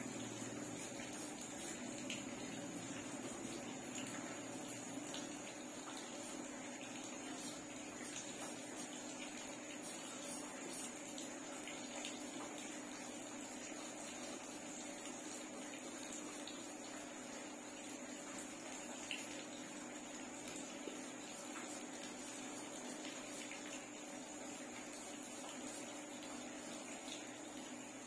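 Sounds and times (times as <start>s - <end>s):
faint electrical hum: 0.0s - 28.0s
pencil scratching on paper: 9.8s - 10.9s.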